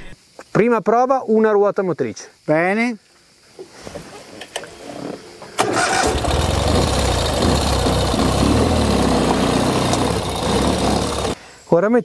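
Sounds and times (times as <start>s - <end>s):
motorcycle engine running: 5.7s - 11.4s.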